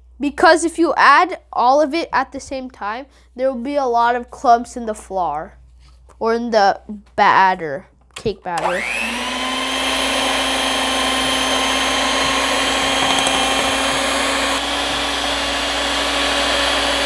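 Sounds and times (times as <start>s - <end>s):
electric hand mixer running: 8.6s - 17.0s.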